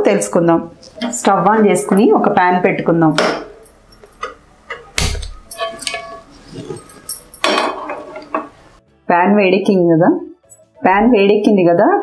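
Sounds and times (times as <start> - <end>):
metal ringing: 3.2 - 8.6
metal clatter: 3.6 - 8.5
metal clicks and knocks: 4.0 - 6.2.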